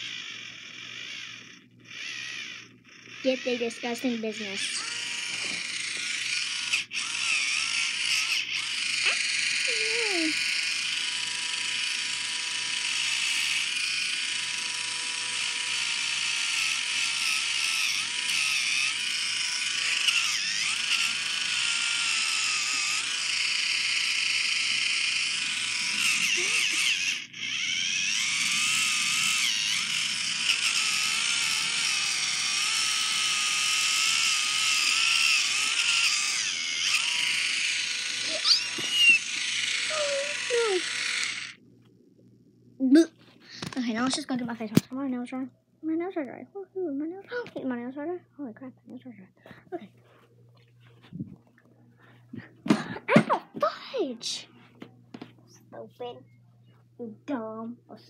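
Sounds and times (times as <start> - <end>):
electric foot file buzzing: 0.0 - 41.6.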